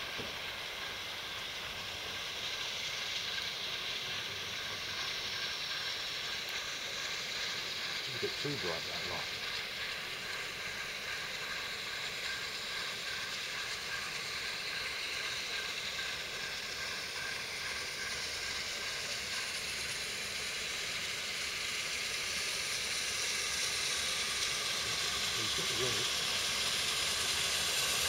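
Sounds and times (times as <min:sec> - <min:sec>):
train hissing rush on rails: 0:00.0 - 0:28.0.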